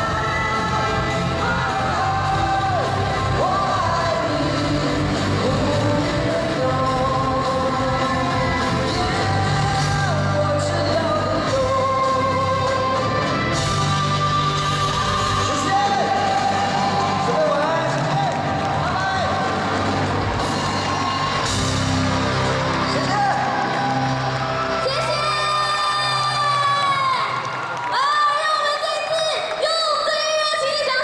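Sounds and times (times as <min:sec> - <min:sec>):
men singing: 0:00.0 - 0:16.7
pop-rock band playing: 0:00.0 - 0:25.8.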